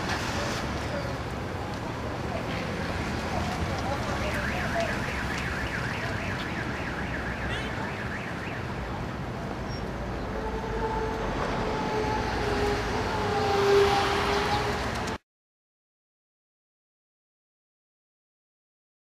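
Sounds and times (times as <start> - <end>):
crowd noise on street: 0.0 - 15.2
police siren: 3.9 - 9.1, 10.3 - 14.6.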